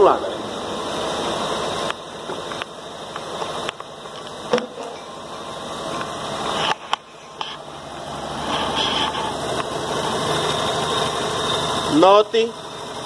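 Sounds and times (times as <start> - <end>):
misfiring car engine idling: 0.0 - 13.0
sharp engine knocks: 2.2 - 5.0.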